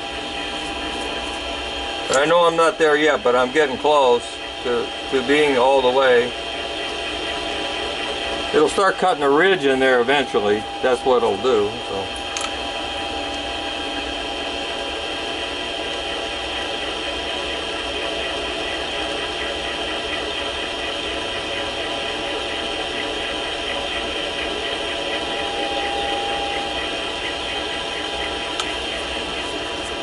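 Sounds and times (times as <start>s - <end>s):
lathe whine with cutting hiss: 0.0s - 30.0s.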